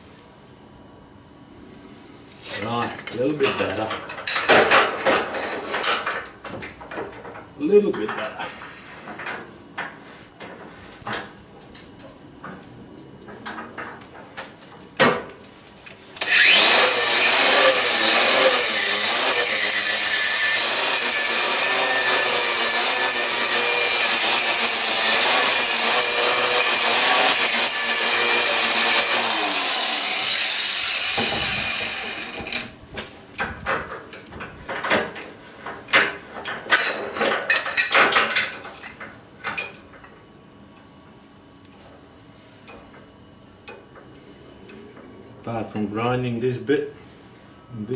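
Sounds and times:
angle grinder grinding metal: 0:16.2 - 0:32.7.

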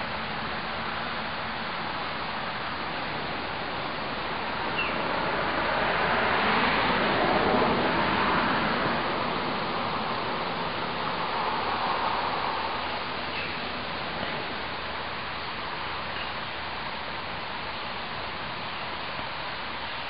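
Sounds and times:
outdoor background noise: 0:00.0 - 0:20.0
car driving past: 0:05.0 - 0:13.1.

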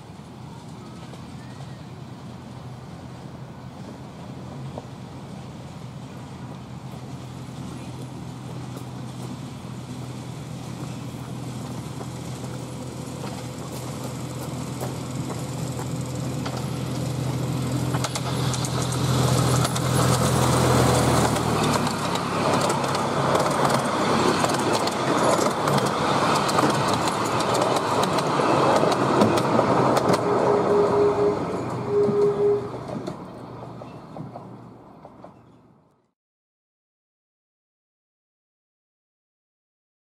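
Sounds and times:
carriages rattling over track: 0:00.0 - 0:35.9
diesel locomotive running: 0:00.0 - 0:36.0
short train horn tones: 0:30.0 - 0:33.0.

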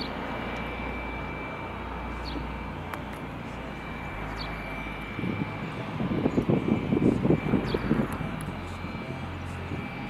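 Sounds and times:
distant plane engine drone: 0:00.0 - 0:10.0
wind buffeting microphone: 0:05.0 - 0:10.0.

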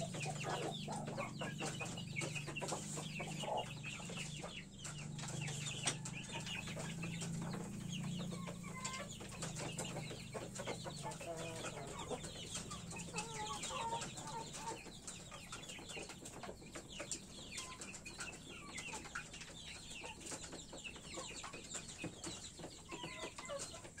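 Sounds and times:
chickens clucking: 0:00.0 - 0:24.0
chicks peeping: 0:00.0 - 0:24.0.

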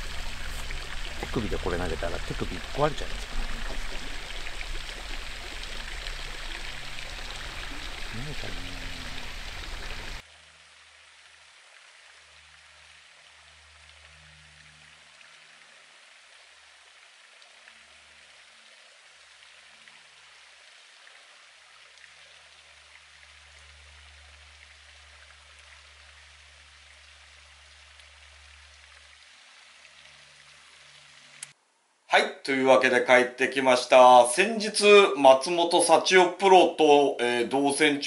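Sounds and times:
low hum: 0:00.0 - 0:10.2
faint trickling water: 0:00.0 - 0:31.6.

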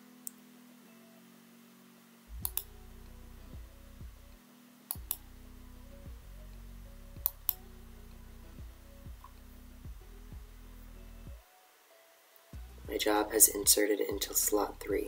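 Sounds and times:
quiet background music: 0:00.0 - 0:15.0
mouse button clicking: 0:02.4 - 0:02.7.

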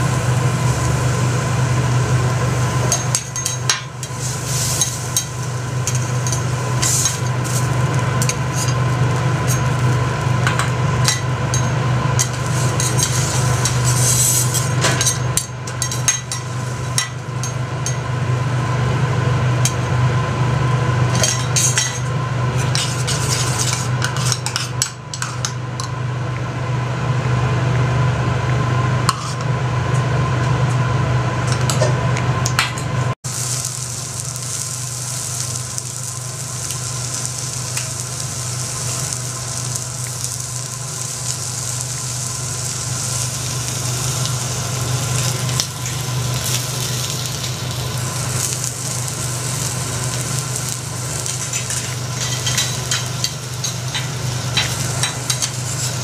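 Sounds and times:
sizzling: 0:00.0 - 0:25.5, 0:33.2 - 0:56.0
steady low hum: 0:00.0 - 0:56.0
metal spatulas scraping on griddle: 0:02.9 - 0:09.8, 0:12.2 - 0:16.6, 0:22.6 - 0:25.5, 0:29.1 - 0:29.4, 0:51.3 - 0:56.0.

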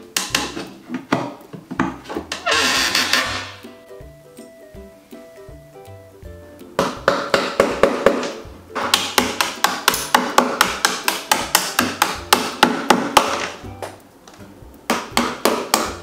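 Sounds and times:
hammer tapping metal tool: 0:00.0 - 0:02.4, 0:06.8 - 0:14.0, 0:14.7 - 0:16.0
faint background music: 0:00.0 - 0:16.0.

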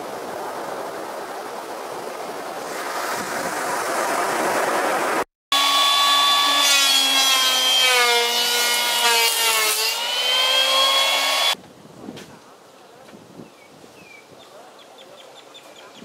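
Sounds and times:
surf wave breaking: 0:00.0 - 0:05.3
motor whine: 0:05.6 - 0:07.0.

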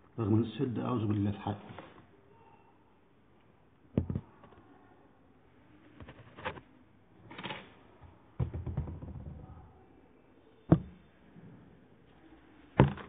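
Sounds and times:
handling knocks and clicks: 0:07.3 - 0:09.4.

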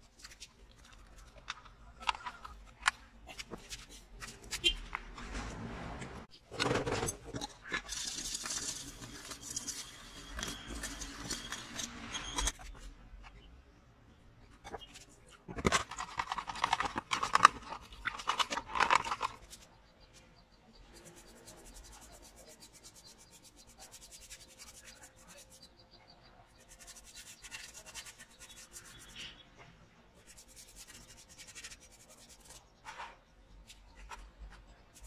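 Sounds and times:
paintbrush scratching on metal: 0:07.8 - 0:12.8, 0:20.8 - 0:29.4, 0:30.2 - 0:33.2
paint tin lid scraping: 0:14.6 - 0:19.6.

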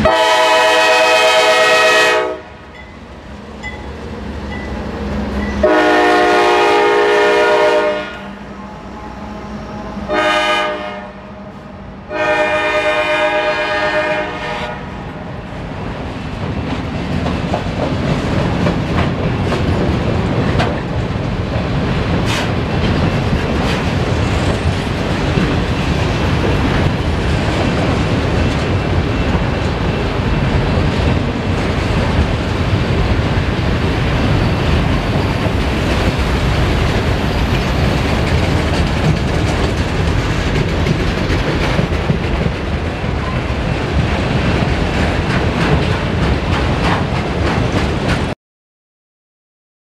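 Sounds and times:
steel wheels rumbling on rail: 0:00.0 - 0:48.4
wheels clicking over rail joints: 0:34.8 - 0:48.3.

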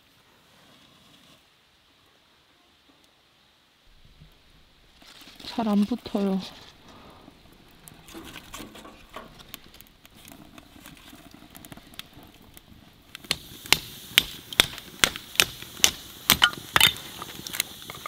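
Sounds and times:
kindling crackling in wood stove: 0:00.0 - 0:18.0
axe chopping firewood: 0:13.1 - 0:17.0.

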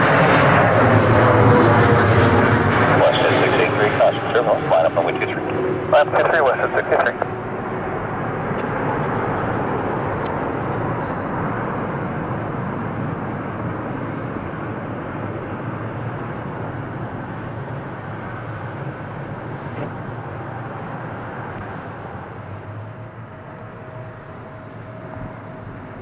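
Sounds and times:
jet engines rumbling: 0:00.0 - 0:26.0.

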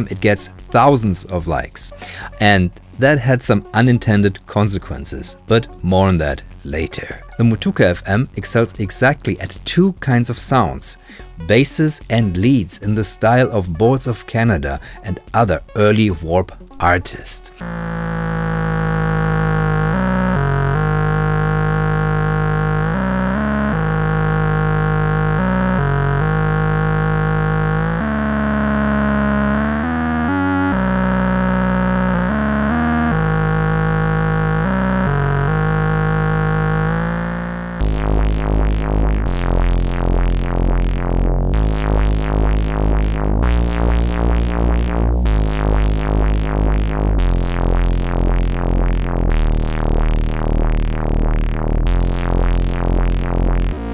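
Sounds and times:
synthesizer melody: 0:00.0 - 0:53.9.

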